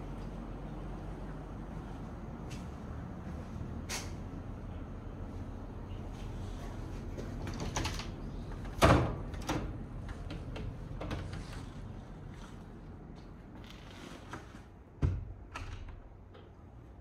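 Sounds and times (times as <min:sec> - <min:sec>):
low steady rumble: 0:00.0 - 0:07.5.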